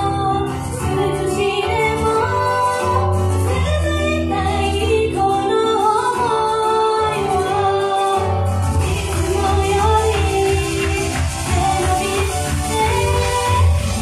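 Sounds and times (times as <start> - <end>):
female voices singing pop: 0.0 - 14.0
sustained bass: 0.0 - 14.0.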